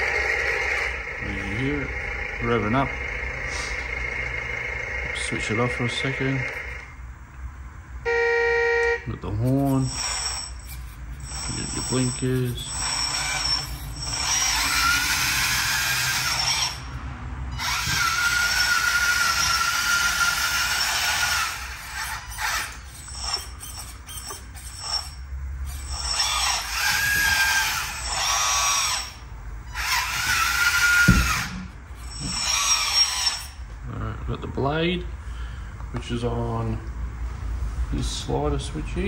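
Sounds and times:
small electric motors whining: 0:00.0 - 0:07.0, 0:09.4 - 0:33.7
knock: 0:31.1 - 0:31.4.

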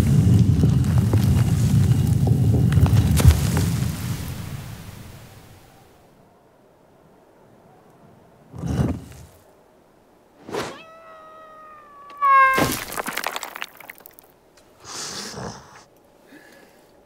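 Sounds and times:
creaking tone falling in pitch: 0:10.6 - 0:12.6.

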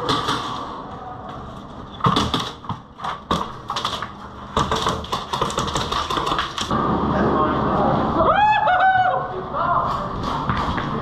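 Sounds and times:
airsoft guns firing: 0:00.0 - 0:00.6.

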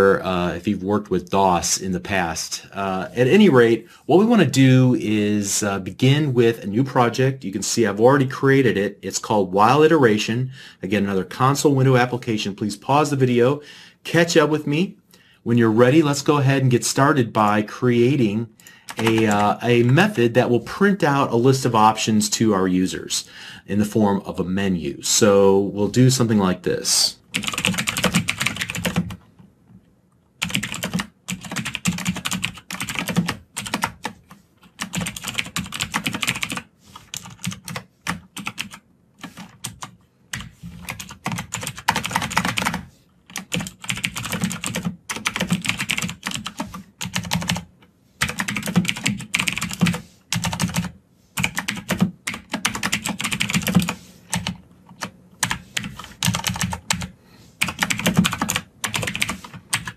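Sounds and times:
computer keyboard typing: 0:18.9 - 0:20.1, 0:27.3 - 0:29.2, 0:30.4 - 0:59.9.

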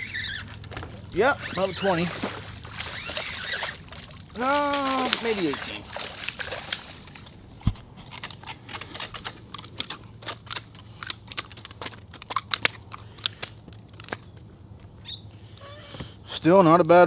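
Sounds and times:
pulsing insect buzz: 0:00.0 - 0:16.8
low thump: 0:07.6 - 0:07.9.

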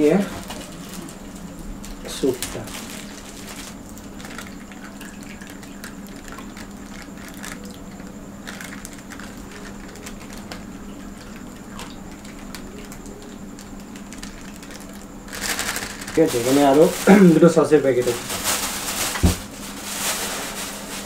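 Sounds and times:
foil packet crinkling: 0:00.0 - 0:21.0
steady low hum: 0:00.0 - 0:21.0
liquid trickling and splashing: 0:03.5 - 0:08.2.

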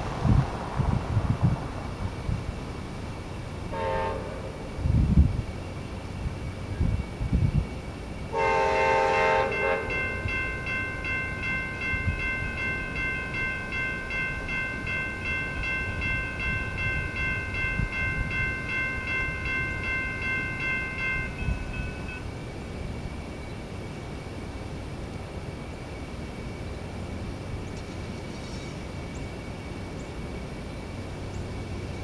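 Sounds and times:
crossing warning bells ringing: 0:02.0 - 0:05.1, 0:08.2 - 0:23.4
train horn blast: 0:03.7 - 0:04.8, 0:08.3 - 0:10.3.

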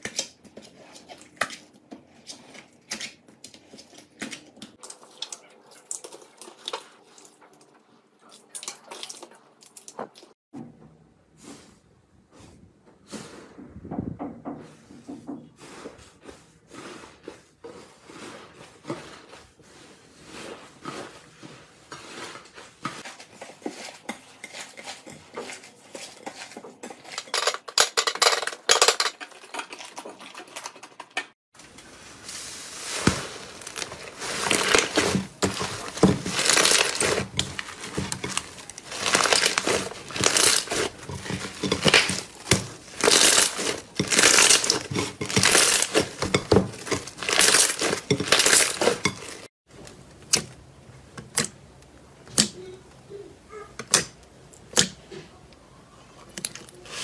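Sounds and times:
slime crackling and popping: 0:32.9 - 0:49.5.

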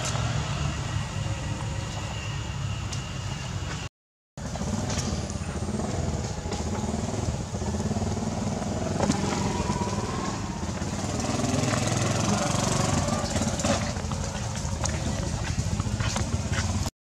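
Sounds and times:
small engine running: 0:04.4 - 0:16.9.

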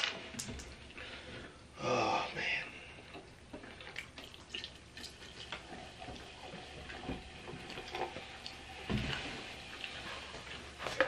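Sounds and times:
soda pouring with crackles: 0:03.0 - 0:11.0.

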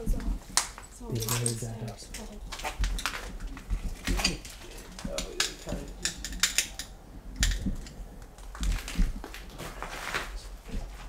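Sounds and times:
footsteps crunching over debris: 0:08.4 - 0:11.0.

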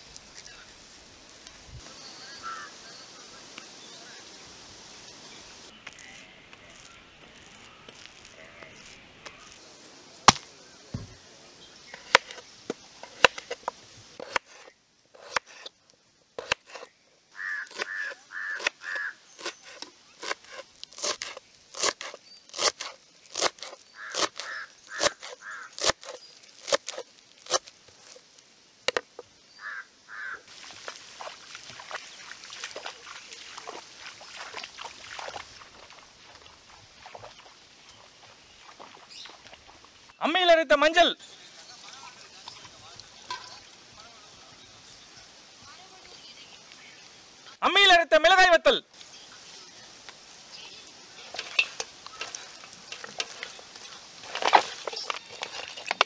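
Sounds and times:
outdoor hiss: 0:00.0 - 0:56.0
bird calls: 0:01.8 - 0:04.4, 0:16.7 - 0:20.3, 0:23.6 - 0:26.5, 0:29.4 - 0:30.5, 0:32.0 - 0:40.2, 0:50.5 - 0:56.0.

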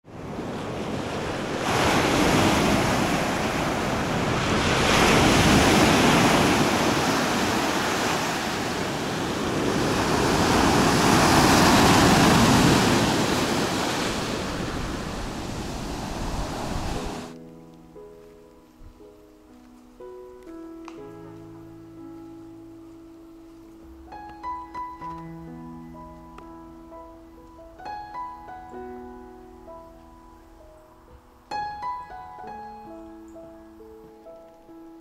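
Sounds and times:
surf washing up a beach: 0:00.1 - 0:17.4.

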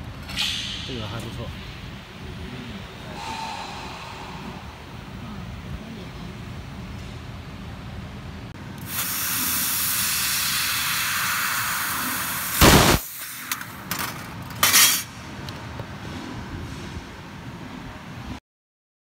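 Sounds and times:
laser welding torch hissing: 0:08.8 - 0:13.6
short loud welding bursts: 0:08.8 - 0:13.8.

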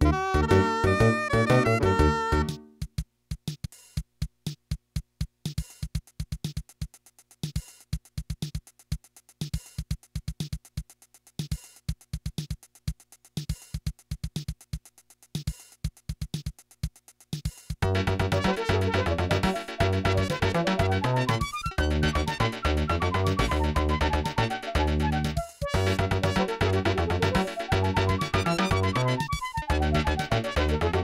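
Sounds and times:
bass line: 0:00.0 - 0:02.6, 0:17.8 - 0:31.0
keyboard chords: 0:00.0 - 0:02.8, 0:17.8 - 0:31.0
drum machine beat: 0:00.0 - 0:31.0.

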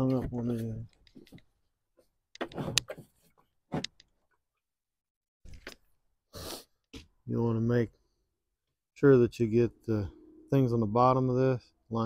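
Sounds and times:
plastic tank scraping and knocking: 0:02.4 - 0:04.0.

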